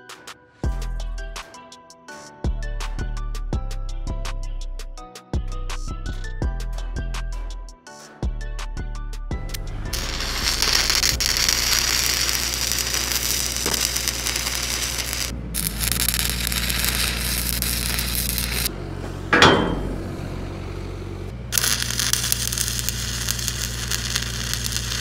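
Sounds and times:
welding arc crackling: 9.5s - 18.7s, 21.5s - 25.0s
low hum: 9.9s - 25.0s
metallic clank: 19.3s - 20.8s.

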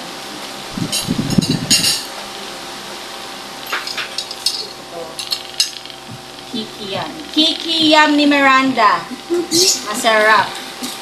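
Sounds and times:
forks clinking on plates: 0.9s - 2.1s, 3.6s - 5.9s.

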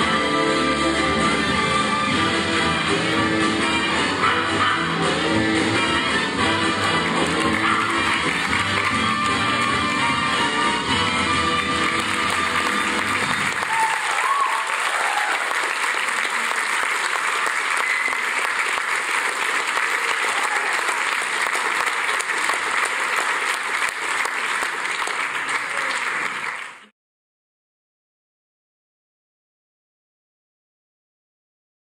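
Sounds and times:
closing music: 0.0s - 14.4s
audience applauding: 6.1s - 26.9s.

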